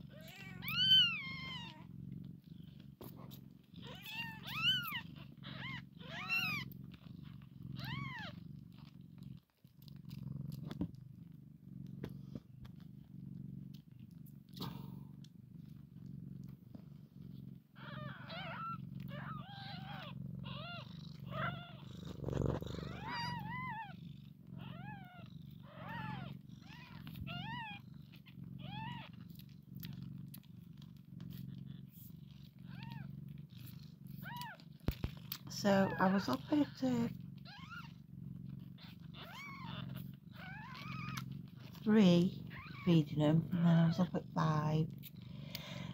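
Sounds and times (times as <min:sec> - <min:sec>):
cat purring: 0:00.0 - 0:45.9
kittens squeaking: 0:00.1 - 0:01.9, 0:03.3 - 0:08.9, 0:17.8 - 0:24.0, 0:24.6 - 0:30.0, 0:31.3 - 0:45.9.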